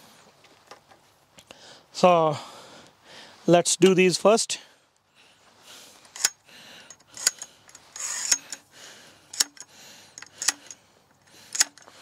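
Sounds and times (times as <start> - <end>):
pole sections sliding: 7.0 - 8.6
pole clicking into place: 9.3 - 10.8, 11.5 - 12.0.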